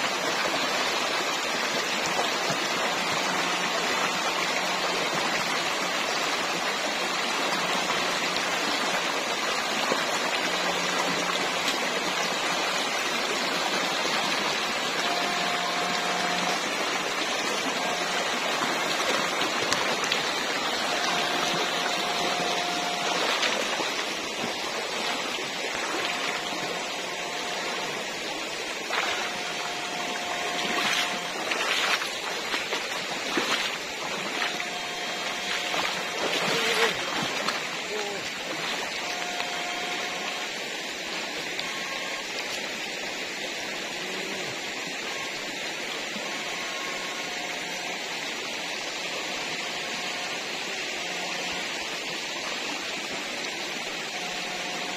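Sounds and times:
stream rushing over stones: 0.0 - 54.9
short steady tones: 13.5 - 32.7, 33.3 - 40.6.

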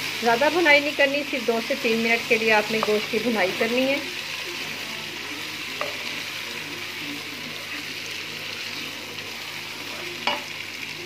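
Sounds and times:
food sizzling in a pan: 0.0 - 11.0
spatula knocking on pan: 2.7 - 3.0.

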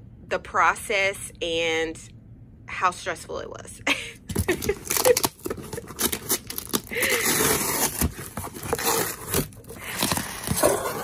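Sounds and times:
cardboard tearing and crinkling: 4.3 - 11.0.

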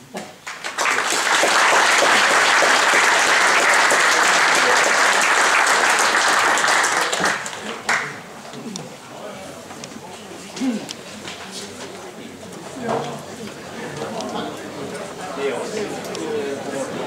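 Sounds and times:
audience applauding: 0.4 - 8.3.

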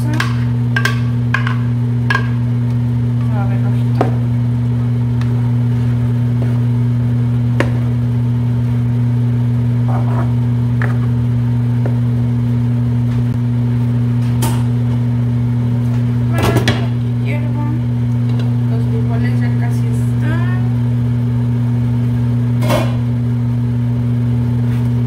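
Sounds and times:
loud low hum: 0.0 - 25.0
spoon knocking frying pan: 0.1 - 2.4.

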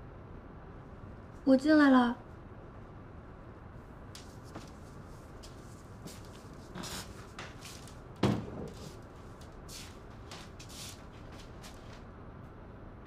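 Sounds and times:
soft footsteps: 4.0 - 12.1
rustling: 4.2 - 12.0
door thudding: 8.2 - 8.9.

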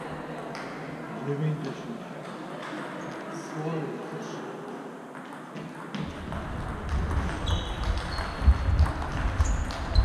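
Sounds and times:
shoes squeaking on floor: 7.3 - 10.0.

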